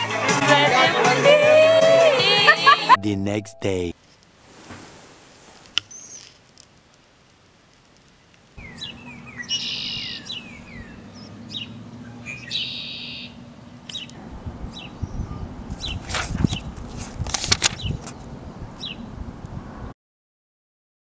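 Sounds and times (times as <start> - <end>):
wild birds singing: 8.6 - 16.7, 18.8 - 19.0.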